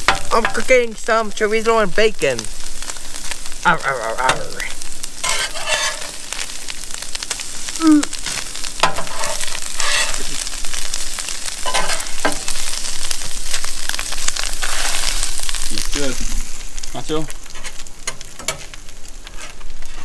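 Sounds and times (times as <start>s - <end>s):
meat sizzling in a pan: 0.0s - 20.0s
utensil scraping a pan: 5.2s - 6.5s, 8.8s - 10.6s, 11.2s - 12.8s, 14.3s - 15.4s, 17.4s - 20.0s.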